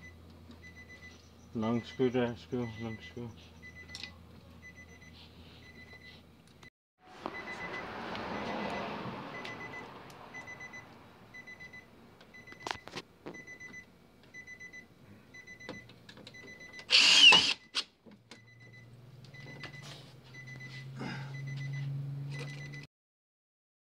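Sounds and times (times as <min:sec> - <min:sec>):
car warning chime beeping: 0:00.0 - 0:06.2, 0:07.1 - 0:16.9, 0:18.4 - 0:22.9
cordless drill whirring: 0:16.9 - 0:17.8.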